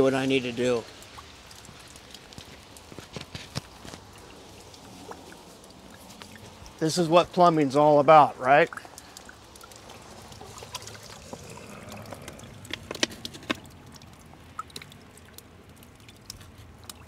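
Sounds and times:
water trickling: 0.0 - 17.0.

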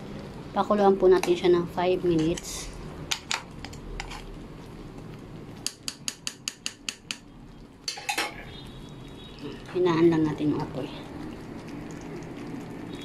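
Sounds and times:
spatula tapping frying pan rim: 5.6 - 7.3.

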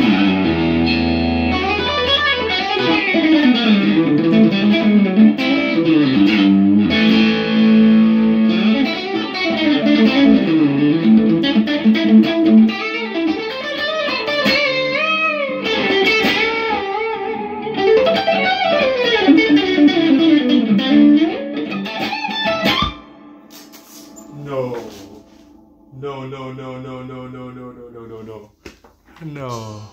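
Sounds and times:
clean electric guitar licks: 22.1 - 26.0.

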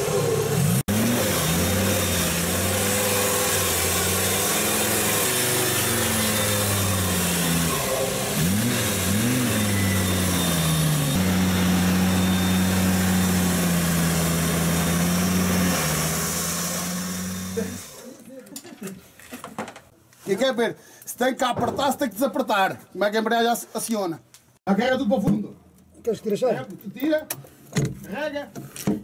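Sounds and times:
diesel engine revving: 0.0 - 18.0.

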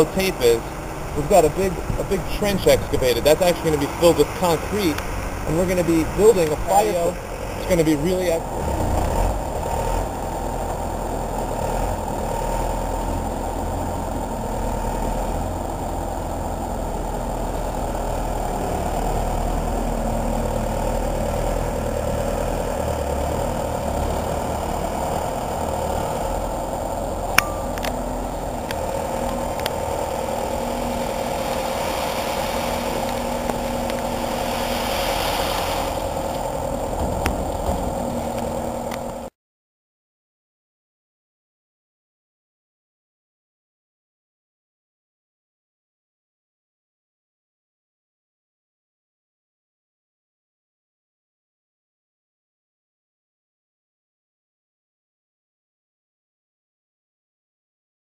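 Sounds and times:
loader engine running: 0.0 - 39.3.

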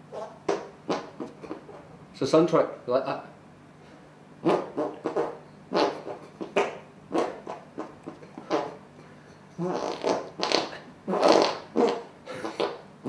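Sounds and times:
person making mouth noises: 0.0 - 2.0, 4.4 - 8.9, 9.5 - 12.9.

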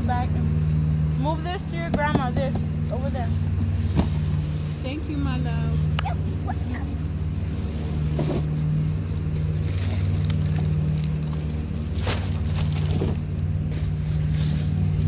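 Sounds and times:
low mechanical hum: 0.0 - 15.0
plastic bags rustling: 3.0 - 15.0.

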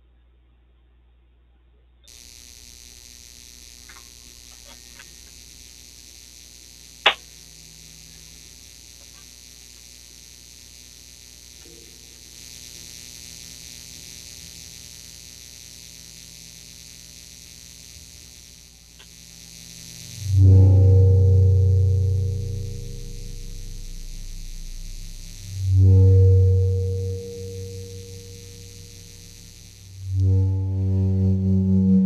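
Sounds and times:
electrical hum and hiss: 1.8 - 32.0
faint ticks: 3.8 - 5.4, 8.9 - 10.0, 18.9 - 19.3
sharp click: 7.0 - 7.3.

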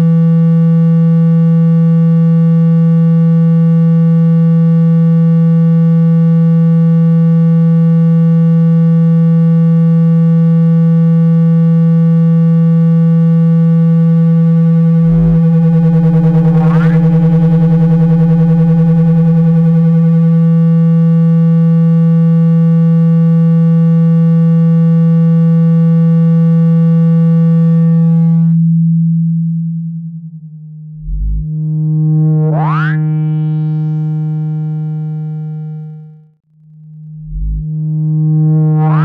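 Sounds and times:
low electronic tone: 11.4 - 39.0
rising tone sweep: 14.8 - 20.0.

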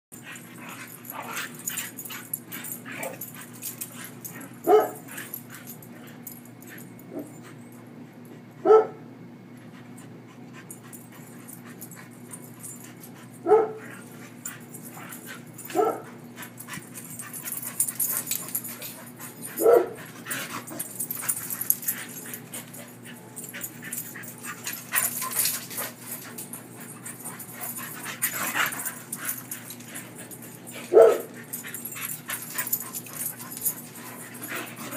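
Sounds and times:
dogs barking: 2.6 - 5.4, 8.6 - 9.0, 12.6 - 14.0, 15.6 - 16.6, 17.3 - 29.9, 30.7 - 33.9
dogs scuffling: 13.8 - 34.9.

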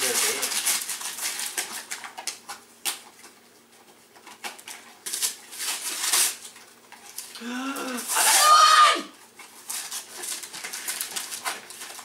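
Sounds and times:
wrapping paper tearing: 0.0 - 3.2, 4.2 - 12.0.

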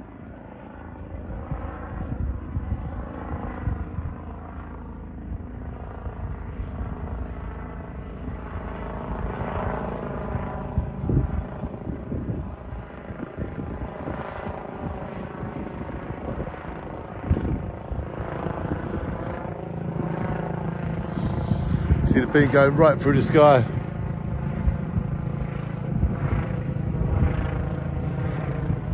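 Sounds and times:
helicopter flying overhead: 0.0 - 28.9.

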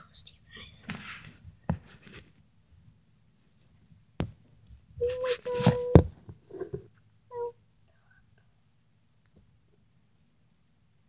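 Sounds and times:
phone being handled: 4.2 - 6.8.

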